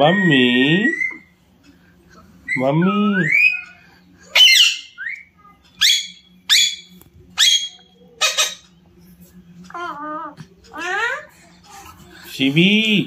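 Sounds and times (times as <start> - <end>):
parakeet squawking: 0.0 - 1.3, 2.4 - 8.8
bird chirp: 2.4 - 8.8.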